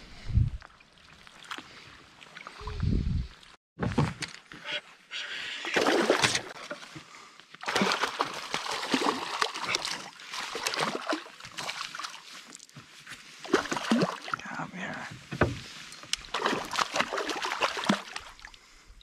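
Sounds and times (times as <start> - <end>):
fish splashing at surface: 7.6 - 12.1.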